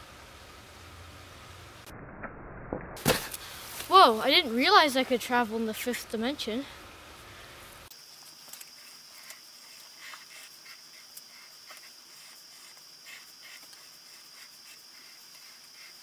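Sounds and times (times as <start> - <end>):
pen scratching on paper: 9.2 - 16.0.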